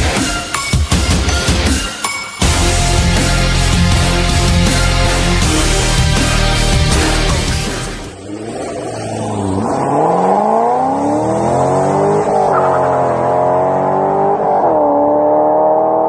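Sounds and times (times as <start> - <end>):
car engine accelerating hard: 5.4 - 16.0.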